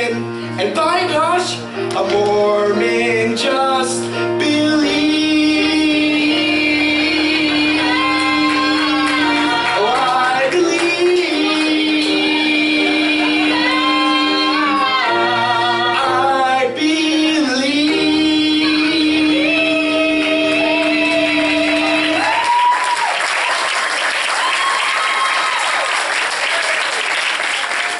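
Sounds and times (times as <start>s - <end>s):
backing track music: 0.0s - 23.0s
audience applause: 6.7s - 14.2s, 20.1s - 27.9s
whoops of cheering: 22.1s - 23.4s, 24.2s - 26.9s.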